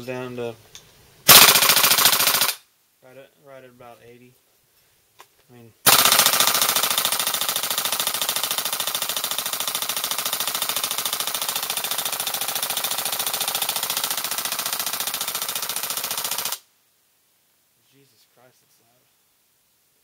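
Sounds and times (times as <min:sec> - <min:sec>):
airsoft gun firing full-auto: 0:01.3 - 0:02.6, 0:05.9 - 0:16.6.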